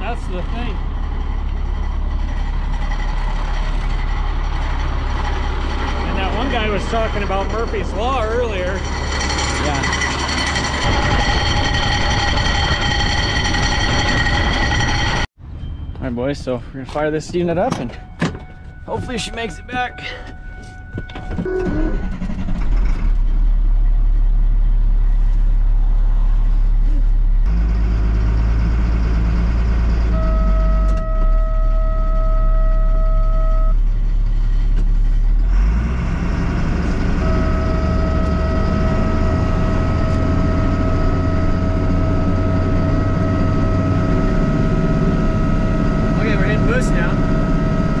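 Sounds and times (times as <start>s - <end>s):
steady warning tone: 0.0s - 16.5s, 17.4s - 22.9s, 29.9s - 33.9s, 36.6s - 48.0s
truck engine starting and running: 0.0s - 48.0s.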